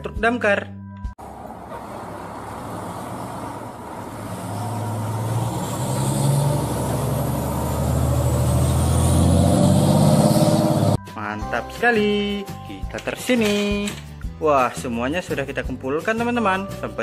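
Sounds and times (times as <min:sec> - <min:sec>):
fire truck engine driving past: 0:01.2 - 0:11.0.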